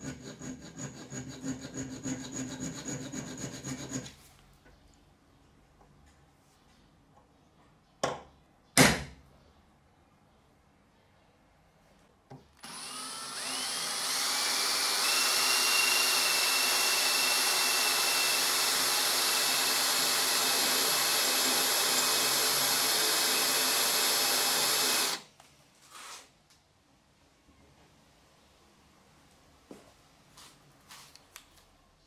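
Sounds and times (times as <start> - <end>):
electric drill boring into steel: 12.6 - 25.2.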